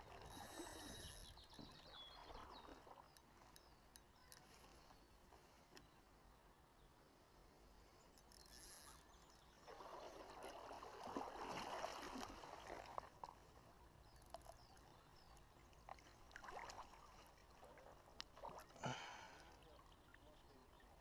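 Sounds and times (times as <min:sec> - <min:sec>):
river water sloshing and splashing: 0:00.0 - 0:03.6, 0:08.9 - 0:19.6.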